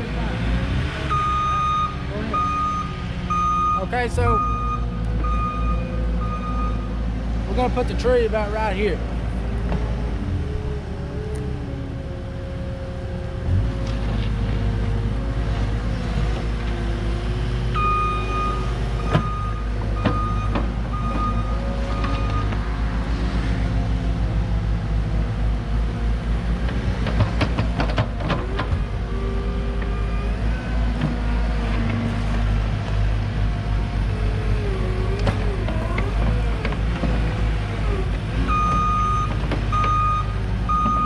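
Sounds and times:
excavator diesel engine running: 0:00.0 - 0:41.0
beeping alarm: 0:01.1 - 0:06.9, 0:17.8 - 0:22.5, 0:38.5 - 0:41.0.

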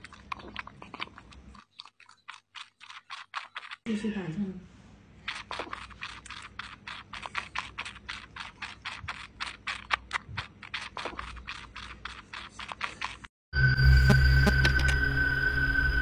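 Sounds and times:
kitten suckling wet clicks: 0:00.0 - 0:03.9, 0:05.2 - 0:13.3.

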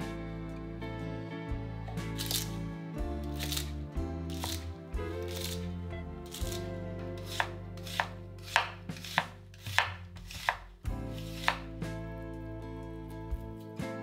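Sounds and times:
knife chopping on cutting board: 0:03.3 - 0:03.7, 0:04.3 - 0:05.7, 0:06.3 - 0:11.7.

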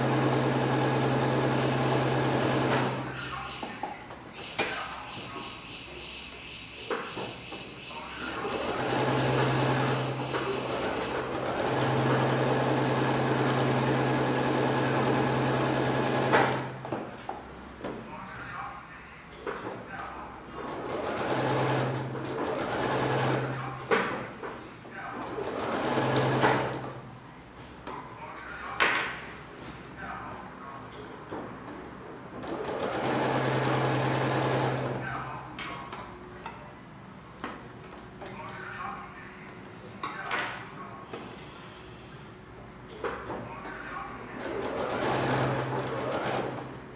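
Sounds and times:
sewing machine running: 0:00.0 - 0:03.0, 0:08.4 - 0:16.7, 0:20.6 - 0:23.5, 0:25.3 - 0:26.8, 0:32.4 - 0:35.0, 0:44.4 - 0:46.7
sewing machine stitching: 0:08.4 - 0:16.7.

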